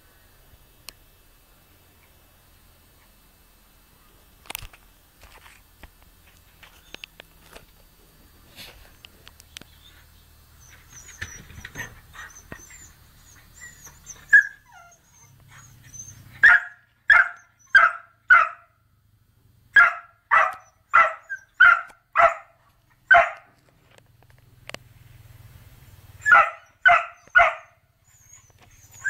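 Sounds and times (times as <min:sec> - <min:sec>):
dog barking: 0:16.4 - 0:18.8, 0:19.8 - 0:23.5, 0:26.2 - 0:27.8.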